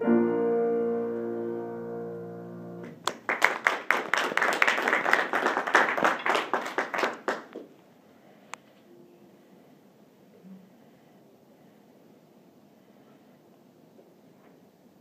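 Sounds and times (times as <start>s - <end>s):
piano chord ringing: 0.0s - 3.0s
small group clapping: 2.8s - 7.8s.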